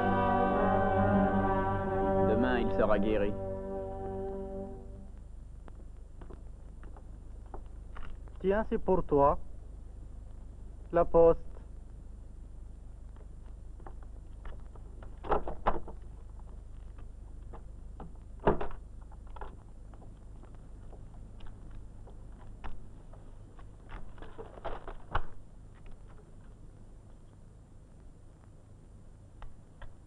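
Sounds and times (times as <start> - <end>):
steady low hum: 0.0 - 15.2.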